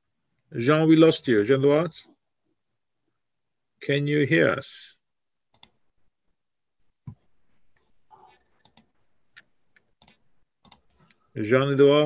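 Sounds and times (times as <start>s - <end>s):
faint clicks and ticks: 5.5s - 5.8s, 7.0s - 11.3s.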